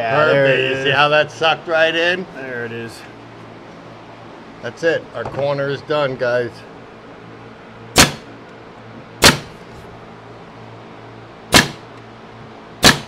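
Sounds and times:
nail gun firing: 0:08.0 - 0:08.3, 0:09.2 - 0:09.6, 0:11.5 - 0:11.9, 0:12.8 - 0:13.0.

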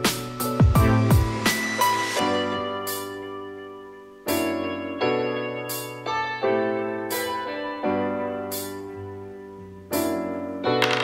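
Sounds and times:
piano chords ringing: 0:02.2 - 0:11.0.

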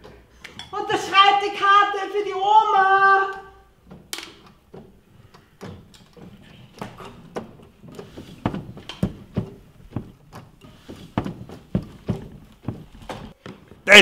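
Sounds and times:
shoe knocking on wooden floor: 0:08.4 - 0:10.2, 0:10.9 - 0:13.3.

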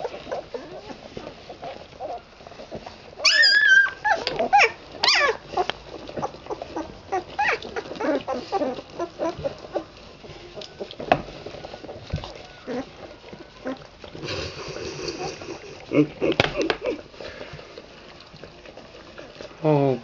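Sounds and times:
puppies squealing and whimpering: 0:00.0 - 0:14.1
puppies squeaking and grunting: 0:00.0 - 0:20.0
puppy high-pitched cry: 0:03.2 - 0:05.4, 0:07.1 - 0:09.4.

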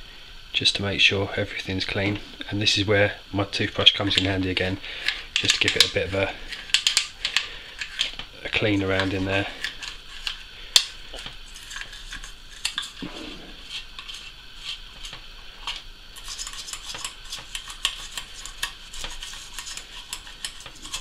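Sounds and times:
toothbrush scrubbing plastic housing: 0:11.5 - 0:13.0, 0:13.6 - 0:21.0.

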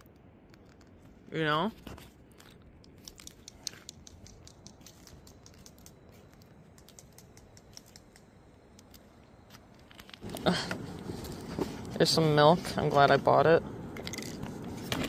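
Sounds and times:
light clicks and ticks: 0:02.8 - 0:09.2.

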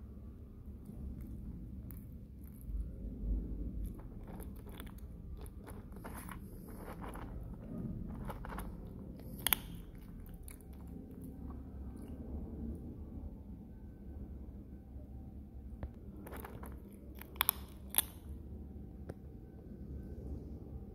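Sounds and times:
kitten crunching dry kibble: 0:00.8 - 0:12.2, 0:16.0 - 0:18.4.

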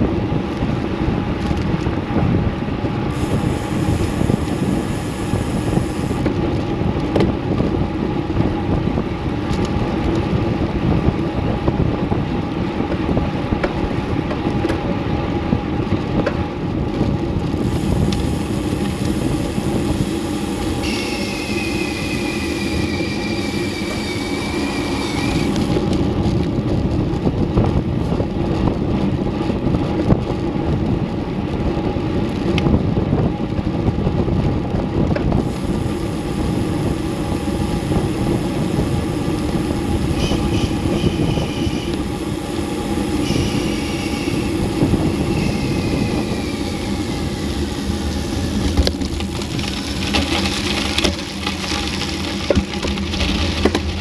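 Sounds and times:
bicycle tyre and road noise: 0:00.0 - 0:54.0
wind rushing over microphone: 0:00.0 - 0:54.0
thin high whine: 0:03.1 - 0:06.3, 0:17.6 - 0:25.8, 0:35.4 - 0:53.8.

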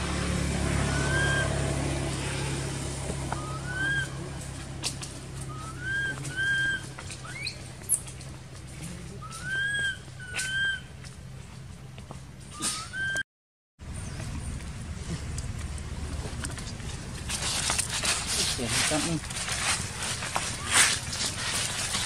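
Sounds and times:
baby monkey coo calls: 0:00.8 - 0:01.6, 0:03.3 - 0:04.4, 0:05.4 - 0:08.1, 0:09.2 - 0:10.9, 0:12.6 - 0:13.2.

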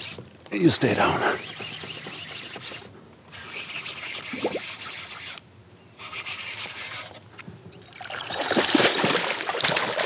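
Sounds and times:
scratchy rasp: 0:00.9 - 0:05.4, 0:06.0 - 0:07.2
fish splashing in water: 0:08.0 - 0:10.0.

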